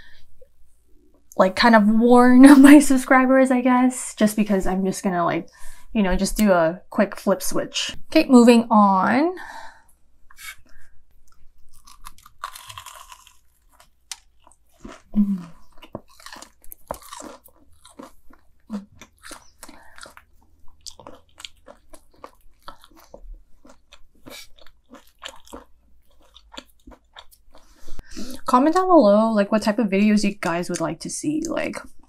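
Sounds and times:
crisp chewing crunches: 11.2s - 28.5s
closed-mouth hums: 15.1s - 15.7s.

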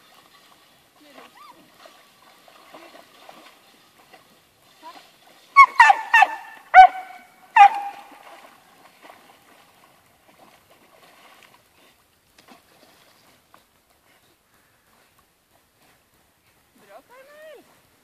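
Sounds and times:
faint water splashing: 0.0s - 18.0s
dog barking in high yelps: 5.6s - 8.1s.

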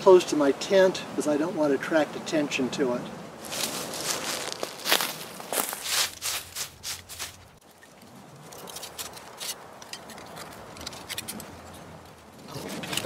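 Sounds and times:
dry leaves rustling and crackling: 3.4s - 11.2s.

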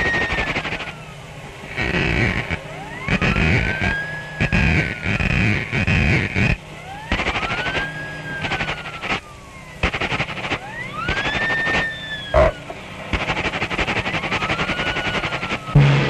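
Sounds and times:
fast rattling roll: 0.0s - 1.0s, 7.1s - 12.5s, 13.1s - 16.0s
whistled glides imitating wind: 0.0s - 15.8s.

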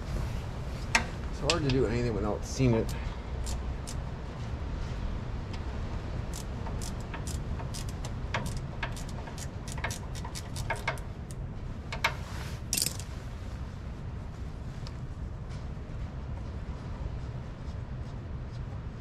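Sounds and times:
steady low rumble: 0.0s - 19.0s
hand tools clicking on bolts: 6.3s - 11.4s, 12.8s - 13.0s.

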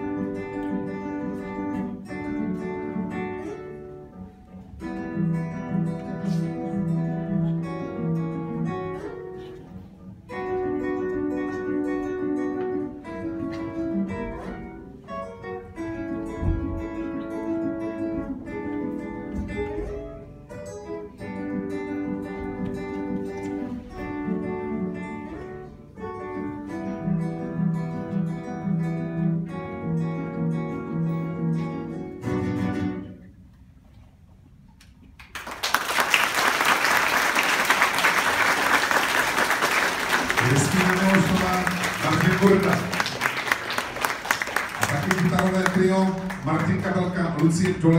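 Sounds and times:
classical guitars playing: 0.0s - 47.9s
audience applauding: 35.2s - 47.9s.

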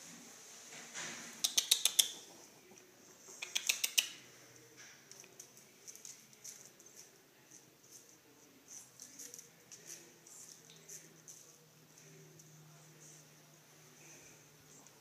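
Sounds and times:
puppy claws clicking on hard floor: 1.4s - 4.2s.

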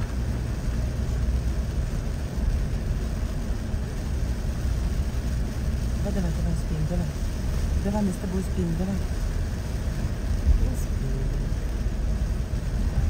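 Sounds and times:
engine and tyre rumble: 0.0s - 13.0s
wet road hiss: 0.0s - 13.0s.

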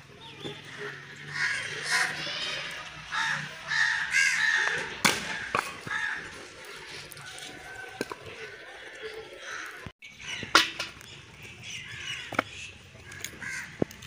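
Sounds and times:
crows cawing: 0.6s - 6.5s, 9.4s - 10.5s, 11.8s - 14.0s
blade chopping firewood: 5.0s - 5.9s.

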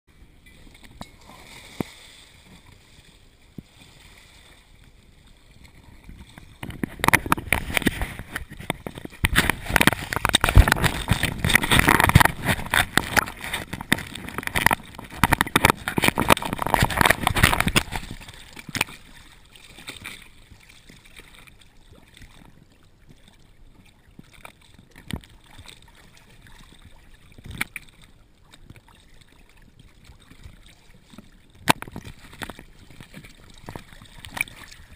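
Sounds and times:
water lapping: 0.1s - 34.9s
water splashing over camera housing: 0.2s - 34.9s.

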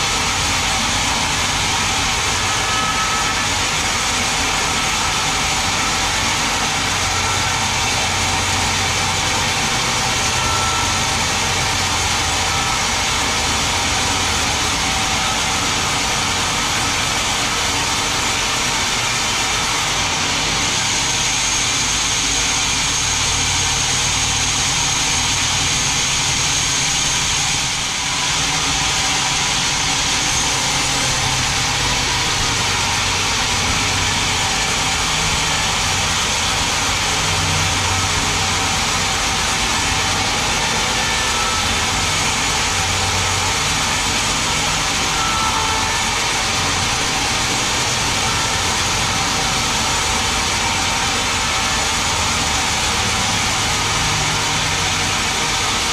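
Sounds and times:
band saw cutting log: 0.0s - 55.9s
thin high whine: 0.0s - 55.9s.

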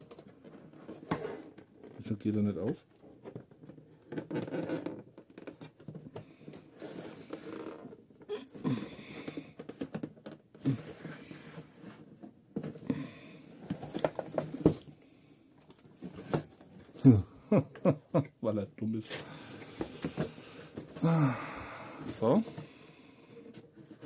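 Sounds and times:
cardboard scraping: 6.6s - 8.0s.

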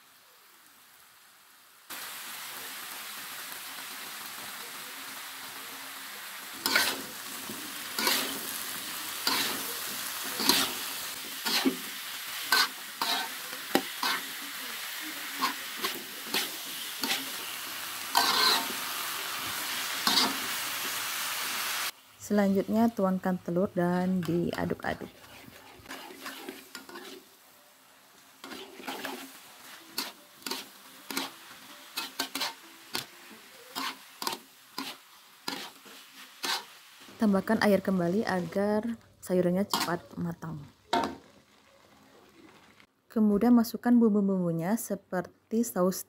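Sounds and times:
vegetables sizzling in a wok: 0.0s - 42.9s
metal spatula scraping a pan: 6.6s - 21.0s, 24.2s - 27.4s, 28.4s - 36.8s, 39.7s - 40.1s.

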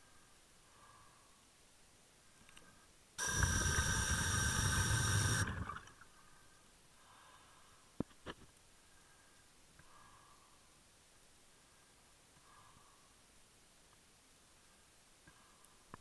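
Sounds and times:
underwater bubbles rushing: 3.2s - 6.0s.

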